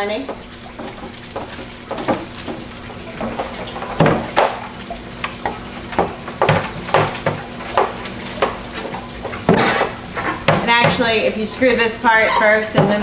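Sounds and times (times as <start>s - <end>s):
hard plastic knocking and scraping: 0.3s - 4.6s, 6.0s - 11.1s, 12.6s - 13.0s.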